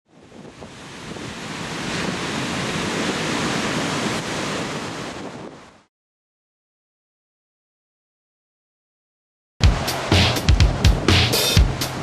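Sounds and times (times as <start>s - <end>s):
wind buffeting microphone: 0.1s - 5.8s, 9.7s - 12.0s
sea surf breaking on beach: 0.1s - 5.9s, 9.6s - 12.0s.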